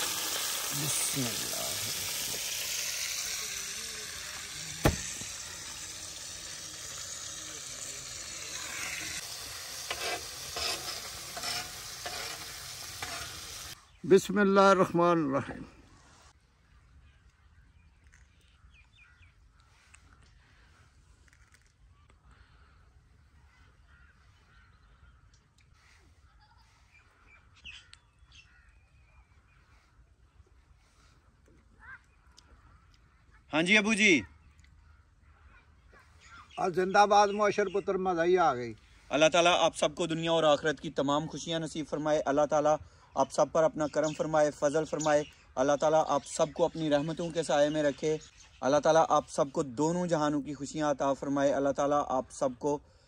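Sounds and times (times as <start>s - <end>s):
fish sizzling in oil: 0.0s - 13.8s
spatula scraping a pan: 8.6s - 13.8s
bird calls: 16.7s - 20.8s, 21.9s - 33.5s, 34.2s - 38.0s.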